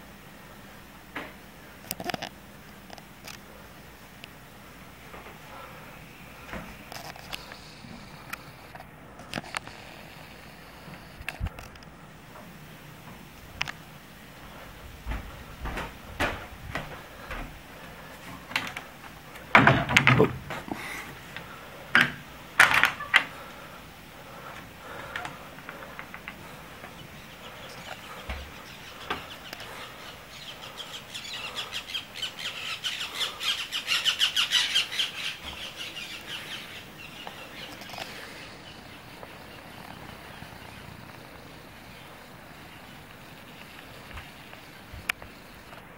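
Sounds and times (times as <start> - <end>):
bird chattering high chirps: 27.0 - 37.8.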